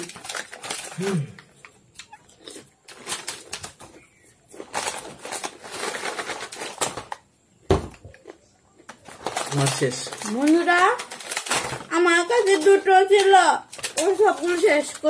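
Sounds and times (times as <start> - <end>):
chips crunching while chewed: 0.0 - 7.2, 8.2 - 11.8
plastic packets crinkling: 0.0 - 7.3, 8.8 - 15.0.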